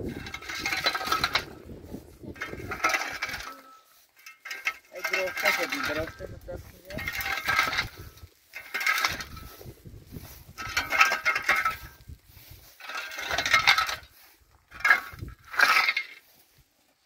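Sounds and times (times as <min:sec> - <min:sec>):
gritty scraping strokes: 0:00.0 - 0:17.0.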